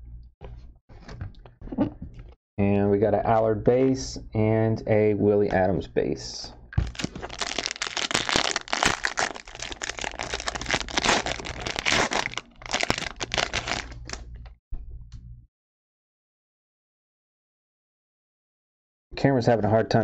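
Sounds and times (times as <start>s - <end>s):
card wrapper crinkling: 6.8s - 14.3s.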